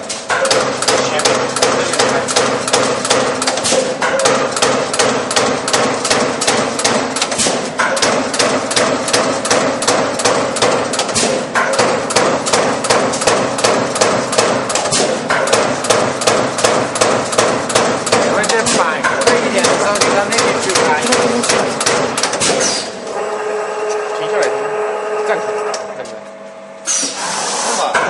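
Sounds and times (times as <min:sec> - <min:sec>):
punch press metallic hits: 0:00.0 - 0:18.4
machine hum: 0:00.0 - 0:28.0.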